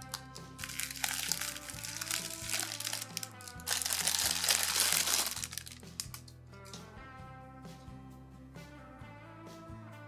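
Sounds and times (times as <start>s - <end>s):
cellophane bag crinkling: 0.0s - 6.2s
background music: 0.0s - 10.0s.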